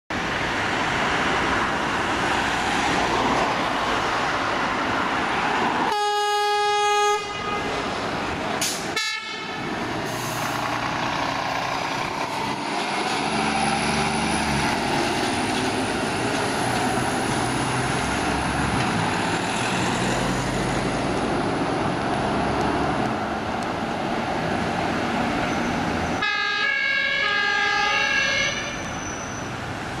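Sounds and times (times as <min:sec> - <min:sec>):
traffic noise: 0:00.1 - 0:30.0
air horn blasts: 0:05.9 - 0:07.8, 0:08.8 - 0:09.6, 0:26.2 - 0:28.8
diesel engine driving past: 0:09.5 - 0:23.6
two-tone emergency siren: 0:26.2 - 0:28.8.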